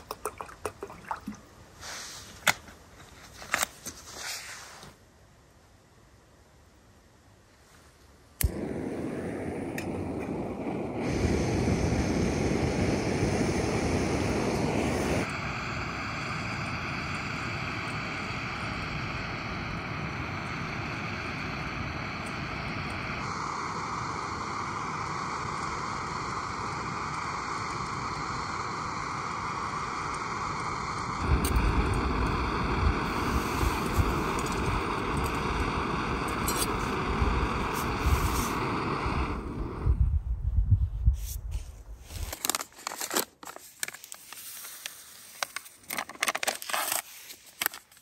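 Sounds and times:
click: 8.4s - 8.6s.

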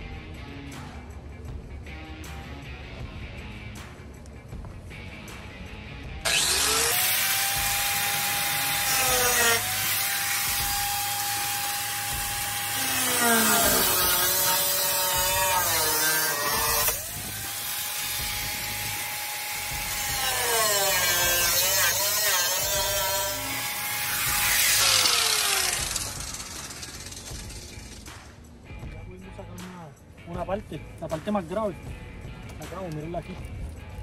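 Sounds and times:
power tool cutting steel: 6.2s - 28.1s.

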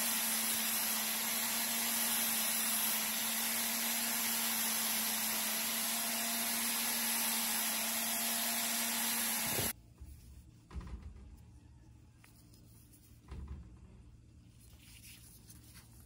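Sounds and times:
power tool motor hissing and humming: 0.0s - 9.8s.

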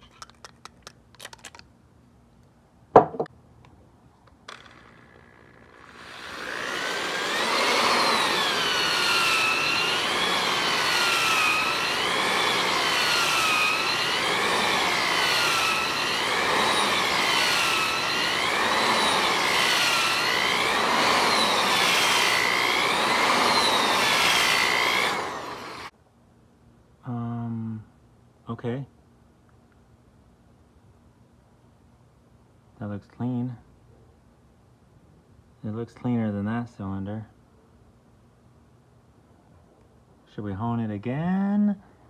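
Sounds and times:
cordless drill motor whine: 4.5s - 25.9s.

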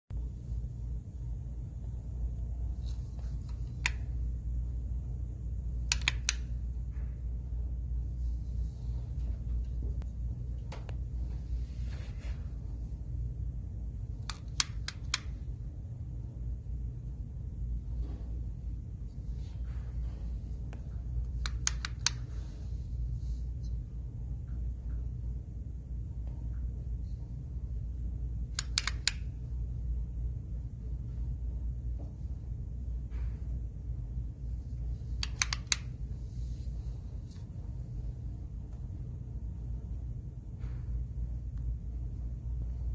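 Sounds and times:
low room hum: 0.0s - 42.9s
sharp clicks: 5.8s - 6.7s, 14.2s - 15.5s, 21.2s - 22.4s, 28.5s - 29.4s, 35.1s - 36.0s.

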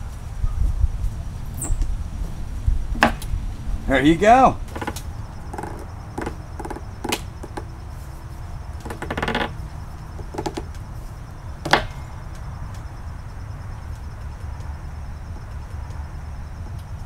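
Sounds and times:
low steady rumble: 0.0s - 17.0s
metal ring scraping creaks: 4.6s - 12.2s.

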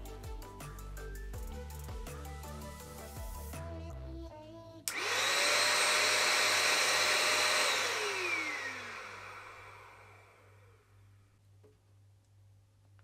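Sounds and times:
vacuum cleaner switch click: 4.9s - 9.8s
vacuum cleaner motor whining: 4.9s - 10.8s.

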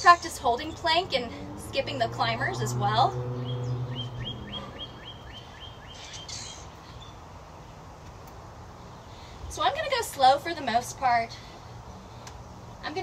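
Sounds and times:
outdoor background noise: 0.0s - 13.0s
low hum: 0.2s - 5.7s
bird chirping: 2.6s - 7.8s.

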